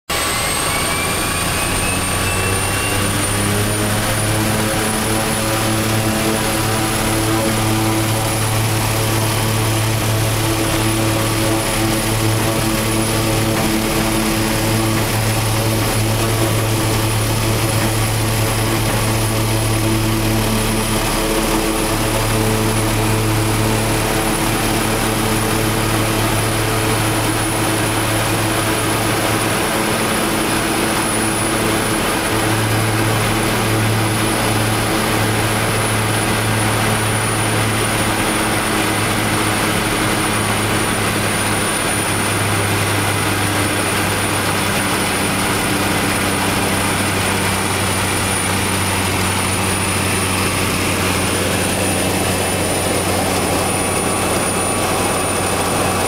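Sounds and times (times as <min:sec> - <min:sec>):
faint high whine: 0:00.1 - 0:38.4
airplane engine droning: 0:00.1 - 0:56.0.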